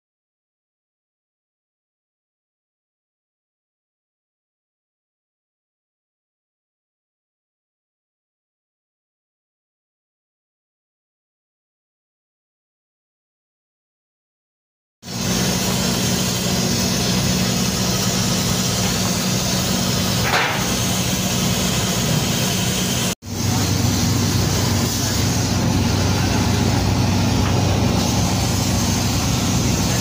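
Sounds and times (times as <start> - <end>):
engine-driven machinery humming: 15.1 - 30.0
hiss: 15.1 - 30.0.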